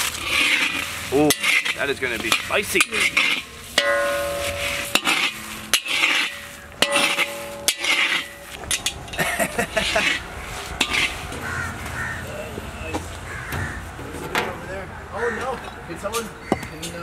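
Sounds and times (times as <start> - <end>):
metal spatula scraping seeds: 0.0 - 9.0, 9.6 - 11.6
spatula clanking on iron pan: 1.2 - 9.2.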